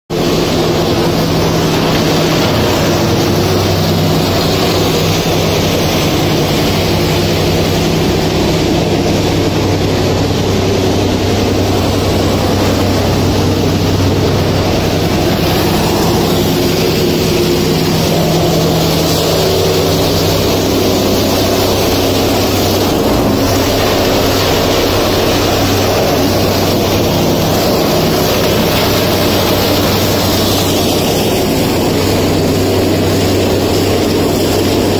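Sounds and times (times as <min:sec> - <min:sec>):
low hum: 0:00.1 - 0:34.9
shredding machine drone: 0:00.1 - 0:34.9.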